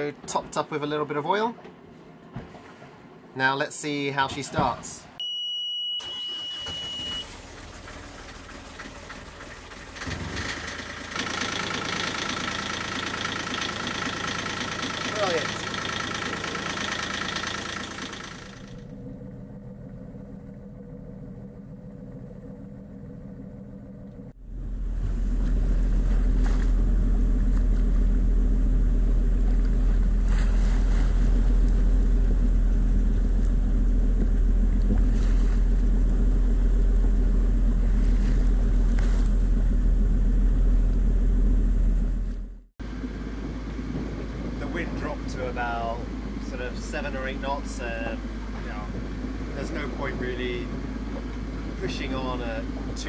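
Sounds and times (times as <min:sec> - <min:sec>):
sea water: 0:01.3 - 0:03.4, 0:06.0 - 0:18.9, 0:24.4 - 0:39.6
boat engine idling: 0:06.0 - 0:53.0
wind rumbling on microphone: 0:43.0 - 0:46.4.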